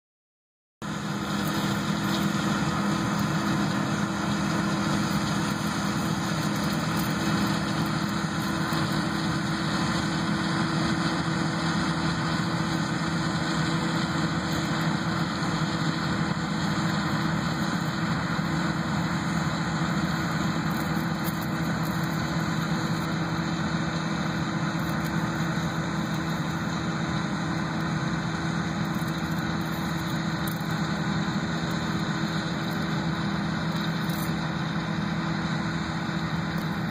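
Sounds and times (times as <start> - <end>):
combine harvester engine drone: 0.8 - 36.9.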